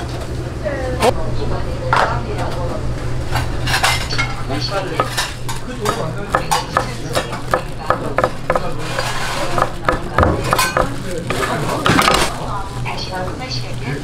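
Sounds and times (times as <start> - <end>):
steady low hum: 0.0 - 14.0
knife chopping on wooden board: 5.8 - 10.9.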